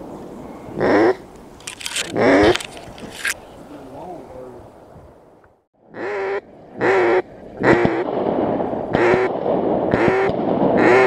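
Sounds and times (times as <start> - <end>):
duck quacking: 5.9 - 8.0.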